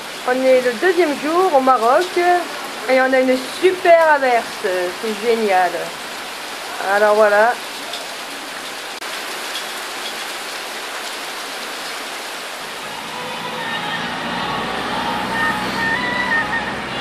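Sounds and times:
heavy rain on rooftops: 0:00.0 - 0:17.0
car engine hum: 0:12.8 - 0:17.0.

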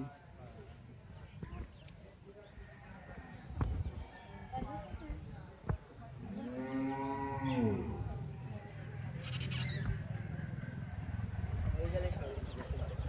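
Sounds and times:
cow mooing: 0:06.2 - 0:08.1.

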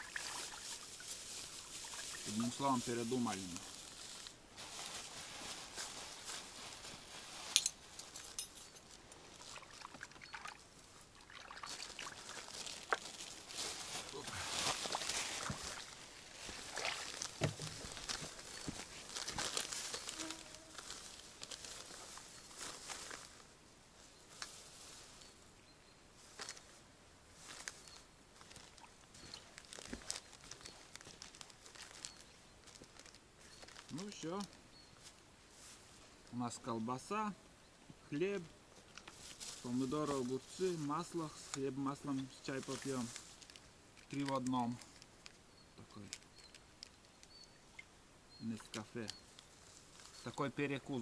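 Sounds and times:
water splashing and trickling: 0:00.0 - 0:03.5, 0:09.3 - 0:20.2
low hiss: 0:00.0 - 0:51.0.

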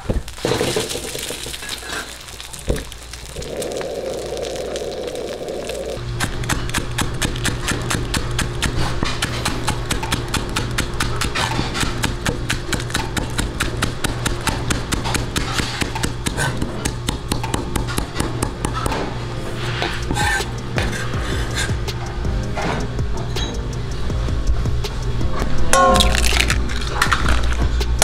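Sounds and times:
egg sizzling in oil: 0:01.4 - 0:06.0
background music: 0:06.0 - 0:28.0
cleaver chopping on wooden board: 0:06.2 - 0:19.0.

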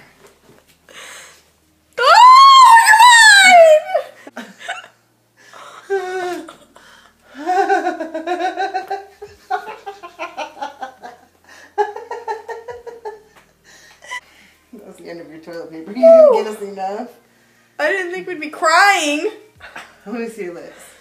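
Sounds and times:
women laughing: 0:05.9 - 0:11.2.

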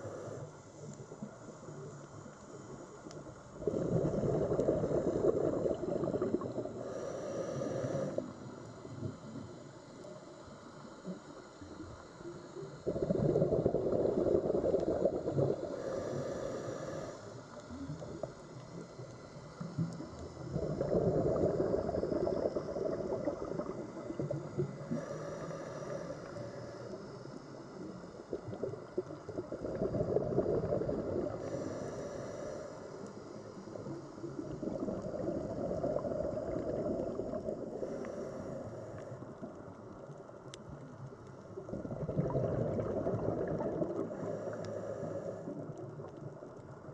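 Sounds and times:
regulator hissing inhale: 0:00.0 - 0:28.9, 0:29.5 - 0:39.5, 0:43.9 - 0:45.8
bubbling exhale underwater: 0:03.5 - 0:08.3, 0:12.7 - 0:17.0, 0:19.7 - 0:26.3, 0:27.9 - 0:31.8, 0:34.2 - 0:39.5, 0:41.6 - 0:46.2.

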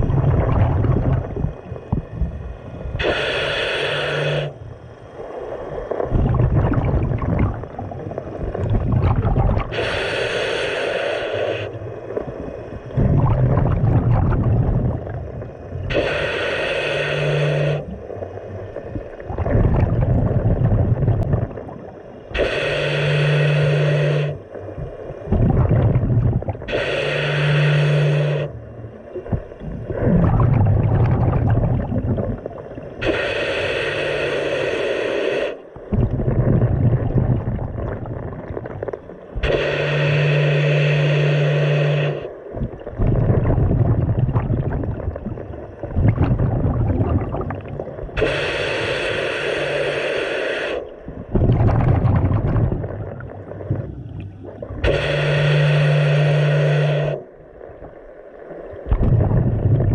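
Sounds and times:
exhaled bubbles rumbling: 0:00.0 - 0:03.7, 0:04.4 - 0:10.2, 0:11.6 - 0:27.1, 0:27.7 - 0:34.0, 0:35.7 - 0:41.2, 0:42.4 - 0:49.0, 0:50.8 - 0:59.9
regulator inhalation hiss: 0:02.6 - 0:06.0, 0:09.6 - 0:12.8, 0:15.8 - 0:18.8, 0:22.0 - 0:25.3, 0:26.6 - 0:28.6, 0:33.0 - 0:35.8, 0:39.4 - 0:42.5, 0:48.1 - 0:51.1, 0:54.8 - 0:57.3.

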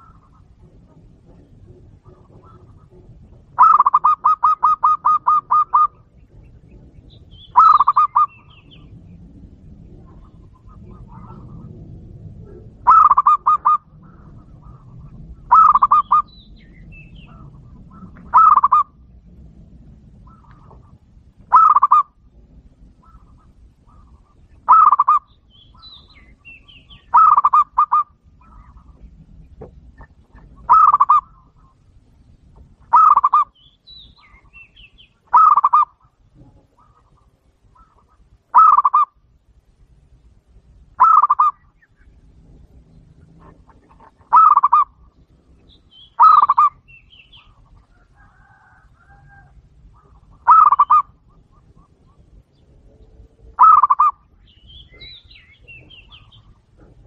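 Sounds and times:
dove cooing: 0:00.0 - 0:09.0, 0:09.8 - 0:19.1, 0:20.1 - 0:22.2, 0:22.8 - 0:31.9, 0:32.8 - 0:33.6, 0:34.2 - 0:39.2, 0:41.0 - 0:45.2, 0:46.1 - 0:52.5, 0:53.4 - 0:54.2
faint bird chirps: 0:32.9 - 0:39.1, 0:43.7 - 0:56.6.

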